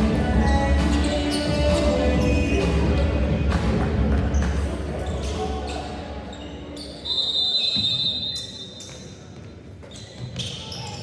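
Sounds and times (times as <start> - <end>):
music: 0.0 - 5.0
voices in echoing gym: 0.0 - 11.0.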